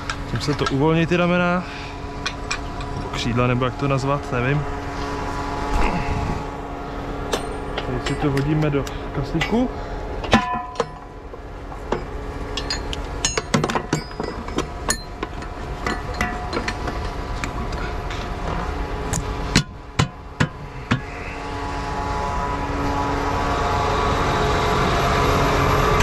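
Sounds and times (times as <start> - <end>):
tractor engine running: 0.0 - 26.0
metal clanks and knocks: 2.2 - 3.2, 7.3 - 8.8, 10.2 - 18.7, 19.5 - 21.1.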